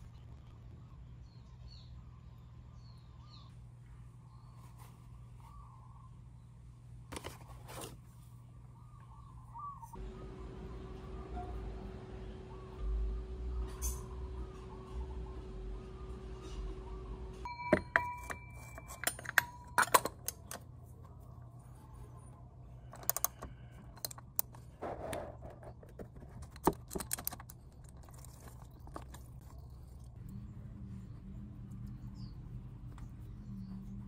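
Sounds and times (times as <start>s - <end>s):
metallic ring: 13.6s - 14.3s, 17.4s - 20.3s
hand tools clicking and clinking: 17.5s - 20.6s.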